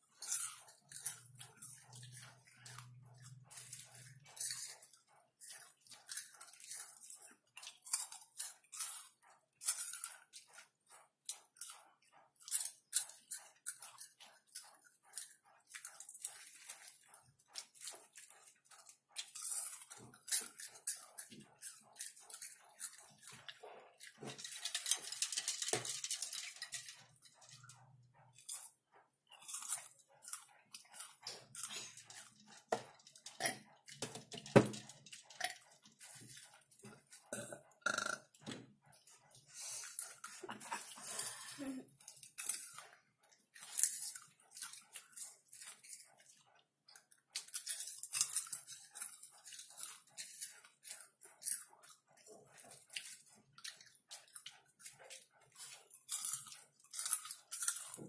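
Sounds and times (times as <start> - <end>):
chewing popcorn crunches: 0.0 - 58.0
person burping: 37.3 - 38.3.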